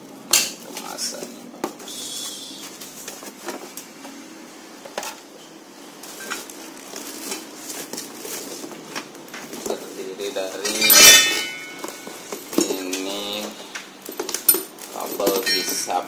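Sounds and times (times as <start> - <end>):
packing rustling: 6.0 - 10.0, 14.0 - 16.0.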